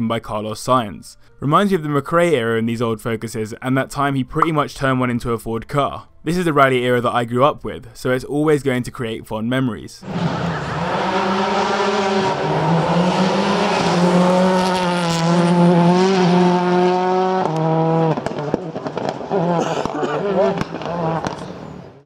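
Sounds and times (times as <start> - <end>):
rally car engine pulling hard: 10.0 - 21.8
engine pops: 17.4 - 20.0.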